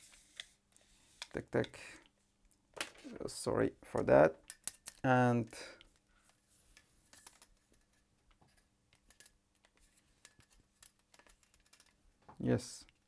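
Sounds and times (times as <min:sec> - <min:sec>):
small objects clicking: 0:04.4 - 0:05.1.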